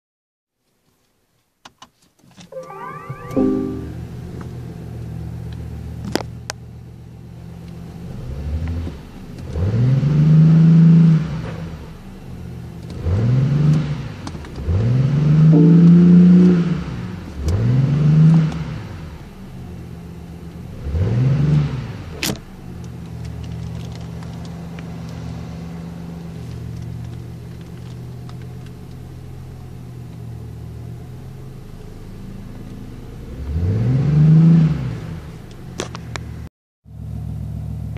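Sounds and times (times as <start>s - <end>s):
car engine idling and revving: 4.0s - 37.9s.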